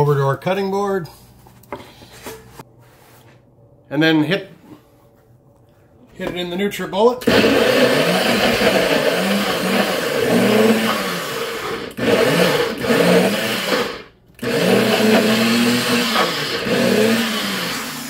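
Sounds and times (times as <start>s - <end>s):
blender motor chopping: 7.2s - 18.0s.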